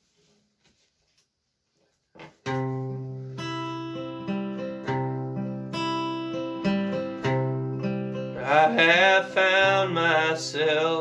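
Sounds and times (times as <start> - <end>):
acoustic guitar strummed chords: 2.4 - 11.0.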